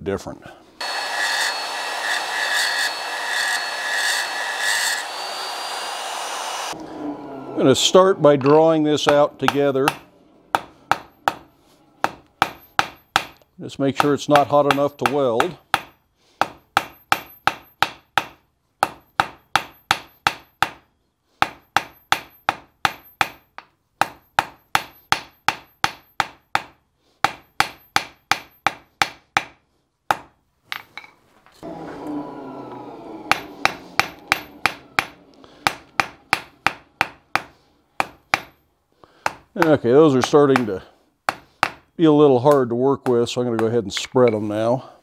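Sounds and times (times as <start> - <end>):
rushing sound: 0.8 - 12.4
hammer striking iron on anvil: 8.4 - 13.4, 14.0 - 20.8, 21.4 - 30.9, 33.3 - 38.6, 39.2 - 41.8.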